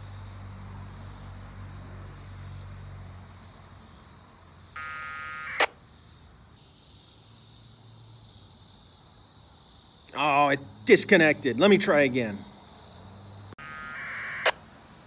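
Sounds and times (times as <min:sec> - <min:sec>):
faint hiss: 0:05.7 - 0:13.6.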